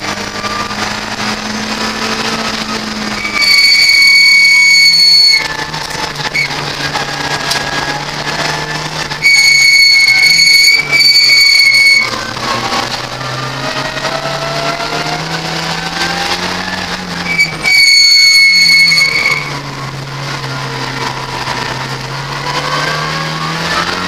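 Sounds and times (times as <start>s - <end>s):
race car engine from cabin: 0.0s - 24.0s.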